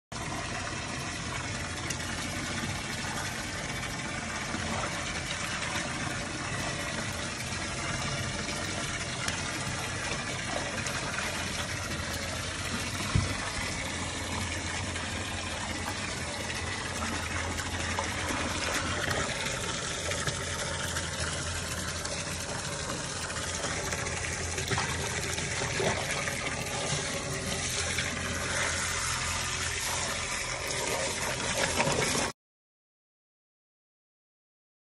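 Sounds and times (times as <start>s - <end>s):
water splashing in a tub: 0.1s - 32.4s.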